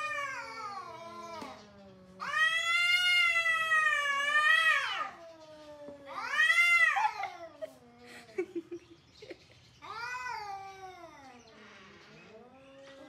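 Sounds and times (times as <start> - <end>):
cat moaning low: 0.0 - 8.3
cats yowling: 0.0 - 8.5, 9.8 - 13.0.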